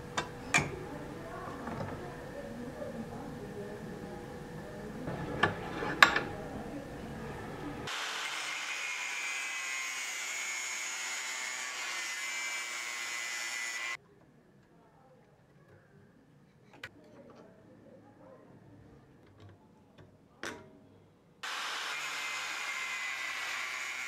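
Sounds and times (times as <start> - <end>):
angle grinder cutting metal: 7.9 - 14.0, 21.4 - 24.0.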